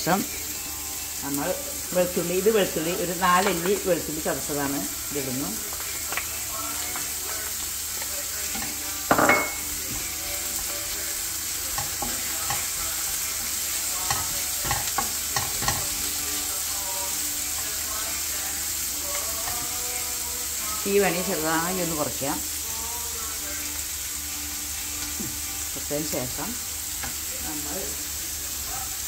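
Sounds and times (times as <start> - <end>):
onion sizzling in hot oil: 0.0 - 29.0
spatula knocking on pan: 14.0 - 15.9.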